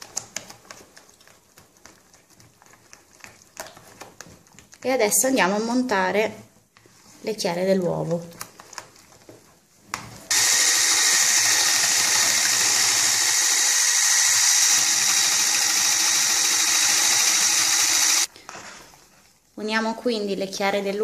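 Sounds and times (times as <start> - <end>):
electric whisk running: 10.3 - 18.3.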